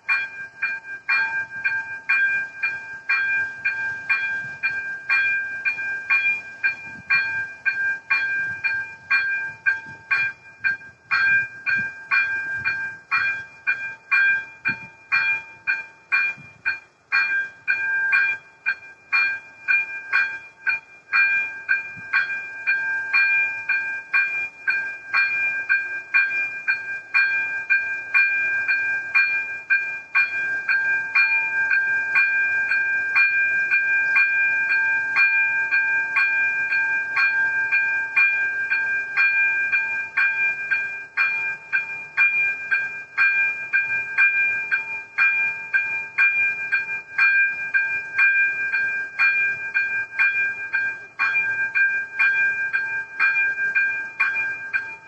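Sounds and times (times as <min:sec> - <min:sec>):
level crossing warning bell ringing: 0:00.0 - 0:55.0.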